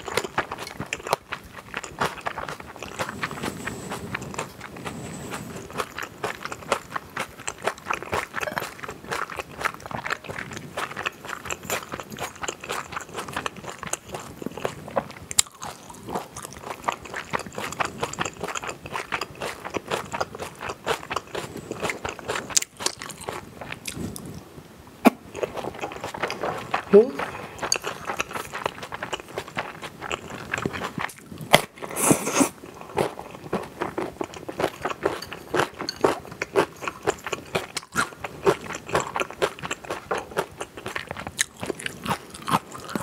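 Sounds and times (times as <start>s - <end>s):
chewing and crunching food: 0.0s - 24.5s, 25.3s - 43.0s
spoon clinking metal bowl: 35.1s - 36.0s.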